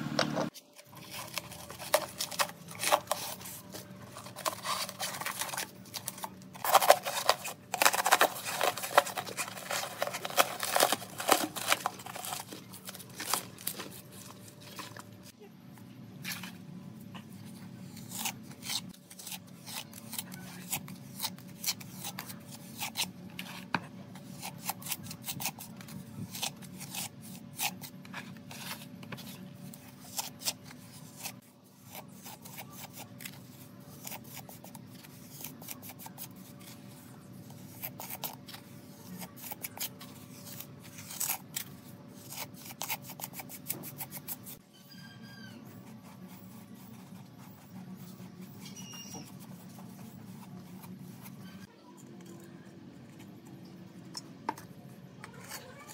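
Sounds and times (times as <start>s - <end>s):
plastic scoop scraping brick: 0.4s - 15.0s.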